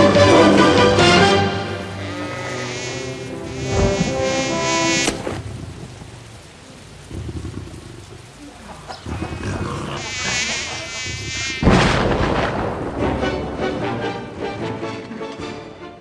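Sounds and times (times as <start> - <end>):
music: 0.0 - 5.2, 12.6 - 16.0
mosquito buzzing: 0.3 - 5.4, 9.9 - 11.7.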